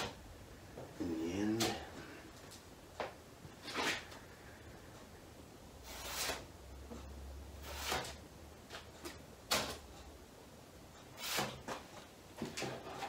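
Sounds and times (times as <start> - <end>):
spreader scraping filler on metal: 5.8 - 6.5, 11.2 - 11.6.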